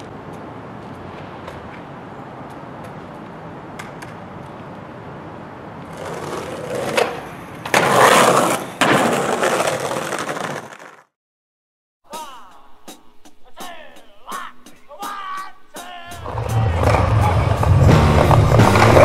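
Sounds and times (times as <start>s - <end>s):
skateboard wheels rolling on concrete: 0.0s - 11.2s, 16.1s - 19.0s
skateboard clacks and impacts: 5.9s - 11.0s, 16.3s - 19.0s.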